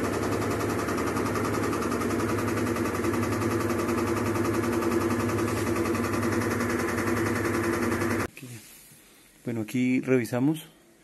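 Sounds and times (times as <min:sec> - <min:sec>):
washer spin cycle rattling: 0:00.0 - 0:08.3.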